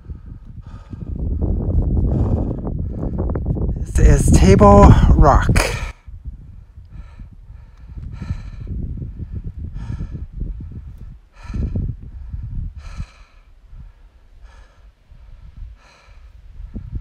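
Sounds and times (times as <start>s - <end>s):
low microphone rumble: 0.0s - 17.0s
heavy breathing: 6.9s - 17.0s.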